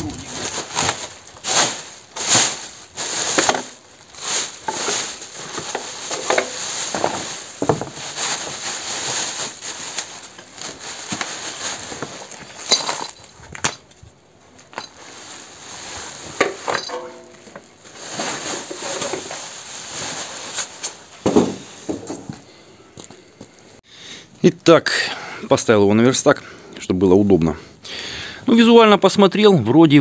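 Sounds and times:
plastic wrapping crinkling: 0.0 - 22.2.

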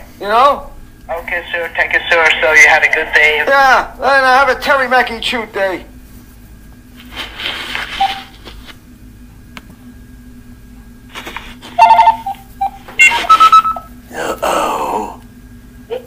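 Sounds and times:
electronic phone beeps: 7.8 - 8.4, 11.8 - 13.9.

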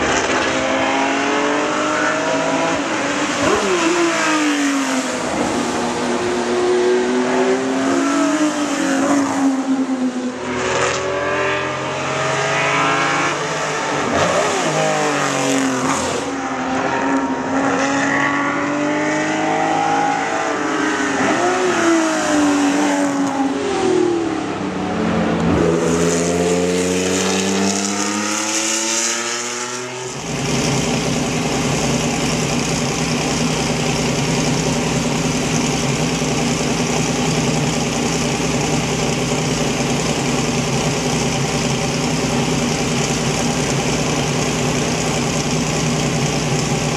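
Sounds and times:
racing car engines revving: 0.0 - 46.9
racing engine idling: 30.2 - 46.9.

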